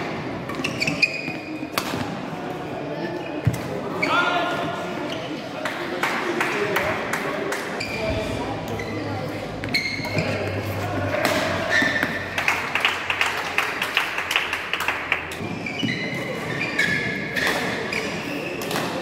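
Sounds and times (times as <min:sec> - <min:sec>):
shoes squeaking on court floor: 0:00.4 - 0:02.0, 0:07.8 - 0:11.0, 0:11.6 - 0:12.3, 0:15.3 - 0:19.0.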